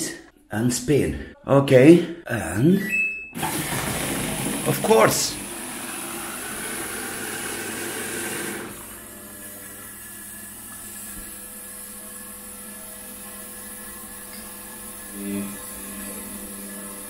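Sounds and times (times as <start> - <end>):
water rushing into washing machine: 3.4 - 11.8
washing machine humming: 3.4 - 17.0.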